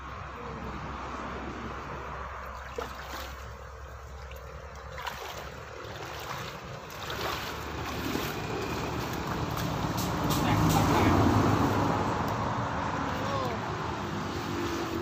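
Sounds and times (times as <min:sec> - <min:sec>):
muddy water sloshing and dripping: 0:00.8 - 0:15.0
small water splashes: 0:02.1 - 0:12.4.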